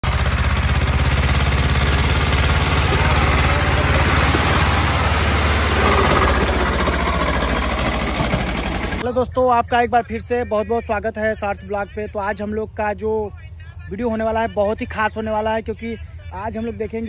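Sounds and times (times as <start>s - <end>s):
diesel tractor engine running: 0.0s - 9.1s.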